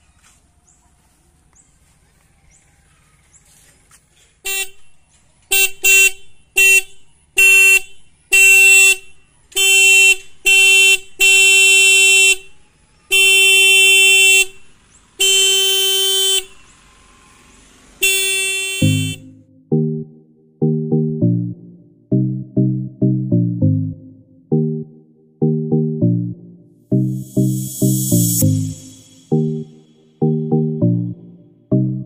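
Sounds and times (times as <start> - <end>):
electric horn blasts: 15.2 - 16.6, 18.0 - 20.0, 27.2 - 31.4.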